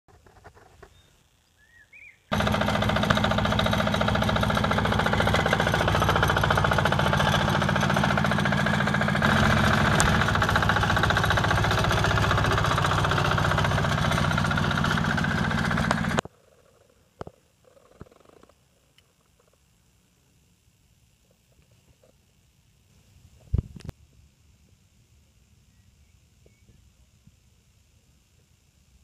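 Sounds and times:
diesel engine knocking: 0:02.3 - 0:16.2.

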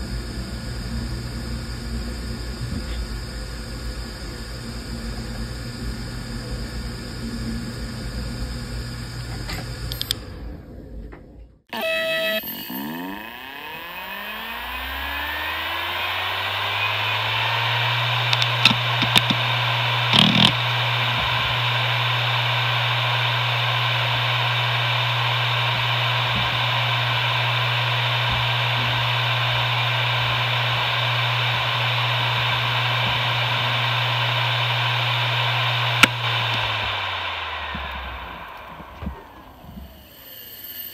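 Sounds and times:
hard drive humming: 0:11.7 - 0:40.9
hard drive clicks: 0:15.4 - 0:30.4, 0:32.4 - 0:37.0.

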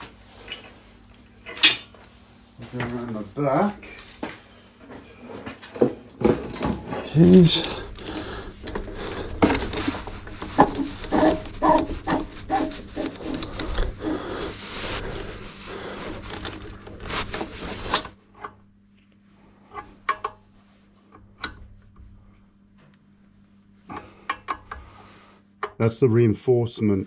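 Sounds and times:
hoses rubbing and knocking: 0:06.3 - 0:18.2.

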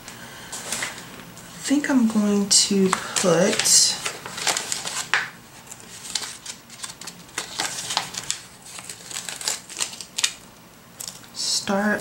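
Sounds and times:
paper rustling: 0:00.5 - 0:01.1, 0:02.6 - 0:10.4.

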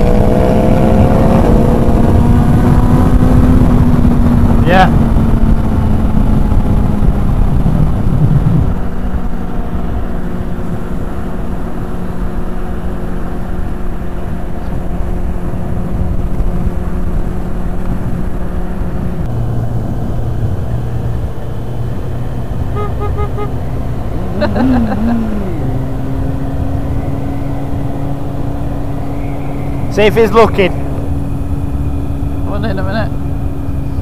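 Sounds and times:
motorcycle engine running: 0:00.0 - 0:34.0
wind buffeting microphone: 0:00.0 - 0:34.0.

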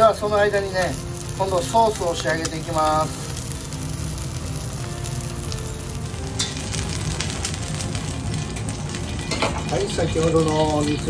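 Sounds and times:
crackling sizzle in wok: 0:00.0 - 0:11.0
soft frying sizzle: 0:00.0 - 0:11.0.

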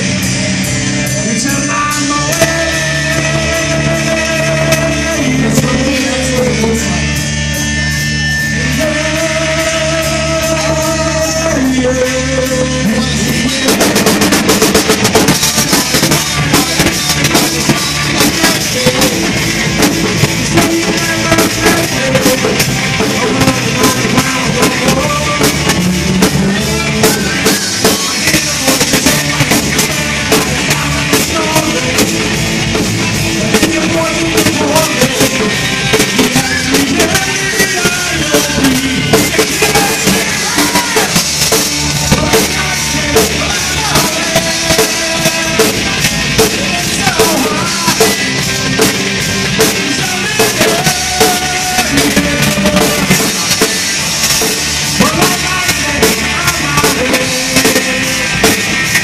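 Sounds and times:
drum kit beat: 0:00.0 - 0:59.0
live rock band playing: 0:00.0 - 0:59.0.

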